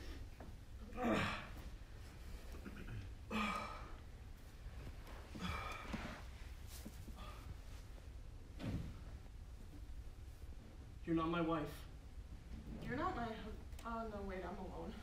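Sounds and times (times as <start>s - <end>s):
low steady hum: 0.0s - 15.0s
person groaning and sighing: 0.8s - 1.6s, 3.3s - 4.0s.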